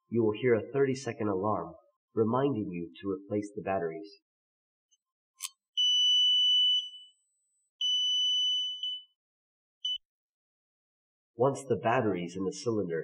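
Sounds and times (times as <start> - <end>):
high alarm beep: 5.8 - 9.2, 9.8 - 10.0.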